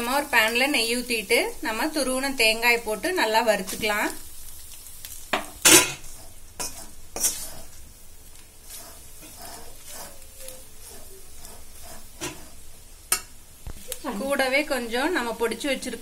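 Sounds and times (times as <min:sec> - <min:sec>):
ghee sizzling: 0:00.0 - 0:16.0
metal spoon scraping a pan: 0:05.4 - 0:07.9, 0:08.6 - 0:14.8.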